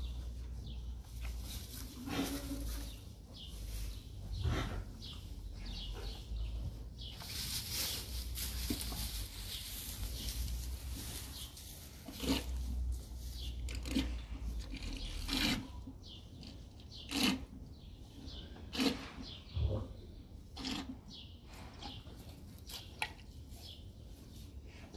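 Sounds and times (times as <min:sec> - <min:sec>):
straw rustling under hooves: 0:00.0 - 0:15.8.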